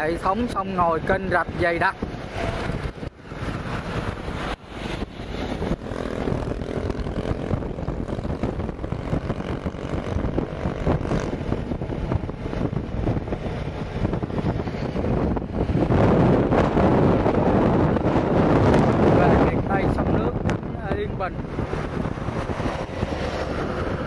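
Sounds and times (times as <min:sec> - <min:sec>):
wind rushing over microphone: 0:00.0 - 0:24.0
motorbike engine droning: 0:04.8 - 0:19.4.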